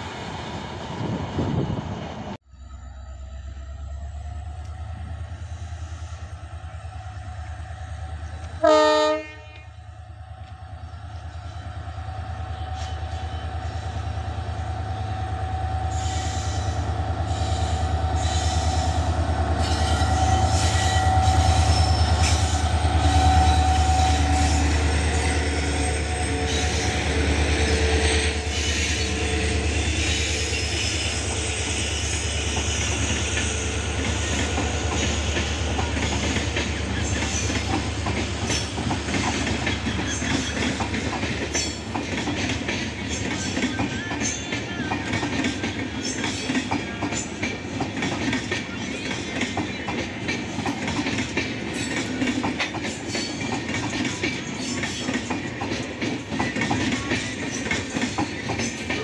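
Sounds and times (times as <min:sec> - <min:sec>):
diesel locomotive engine drone: 0:00.0 - 0:59.0
train horn blast: 0:08.5 - 0:09.8, 0:15.8 - 0:32.0
train wheels clattering on rail joints: 0:16.0 - 0:59.0.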